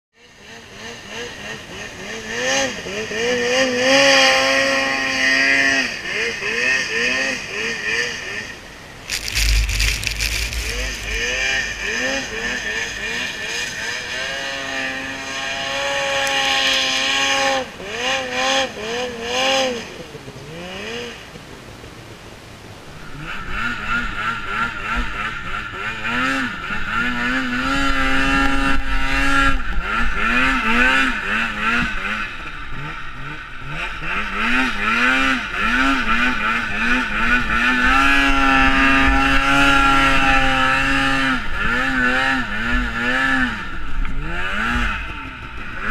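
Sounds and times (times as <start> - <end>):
wind on microphone: 9.1 - 14.0
snowmobile engine revving: 9.1 - 19.9, 23.2 - 45.9.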